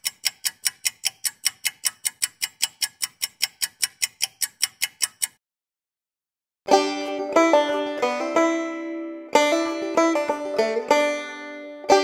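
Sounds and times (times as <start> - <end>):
rapid mechanical ticking: 0.0 - 5.4.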